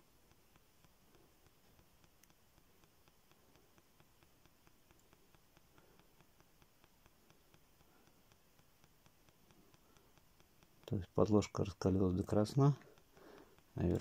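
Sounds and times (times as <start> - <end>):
faint even ticking: 0.0 - 14.0.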